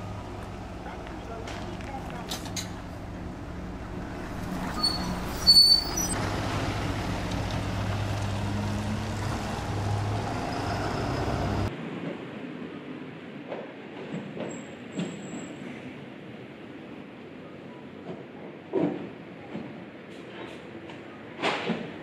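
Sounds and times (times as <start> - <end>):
bus engine drone: 0.0 - 12.4
street background: 0.0 - 22.0.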